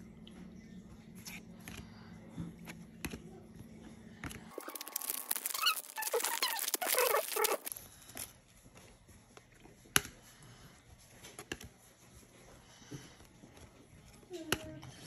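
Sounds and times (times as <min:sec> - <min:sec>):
foil wrapper tearing and crinkling: 0:04.5 - 0:07.9.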